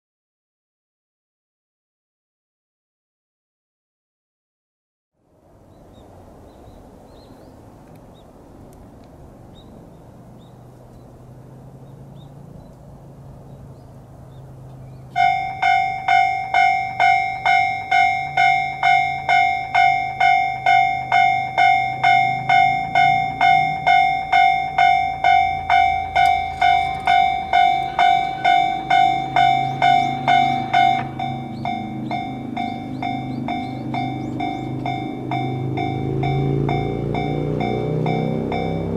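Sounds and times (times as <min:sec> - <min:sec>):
low background rumble: 0:05.4 - 0:38.8
level crossing bell ringing: 0:15.2 - 0:38.9.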